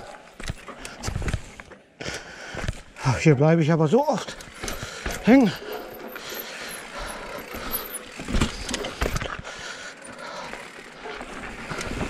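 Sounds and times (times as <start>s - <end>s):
bike tyres on dirt trail: 0.0s - 12.0s
bike chain rattling: 3.8s - 12.0s.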